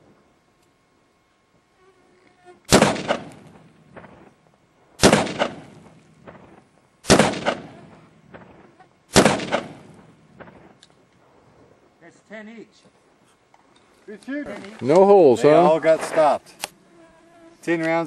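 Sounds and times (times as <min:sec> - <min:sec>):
rifle shots: 0:02.7 - 0:04.3, 0:05.0 - 0:10.8.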